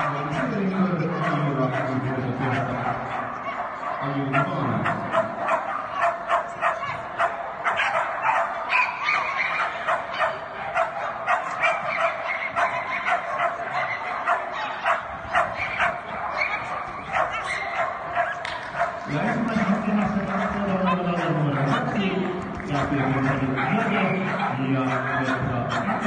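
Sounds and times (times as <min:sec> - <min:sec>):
small dog barking excitedly: 0:02.5 - 0:19.1, 0:22.8 - 0:26.0.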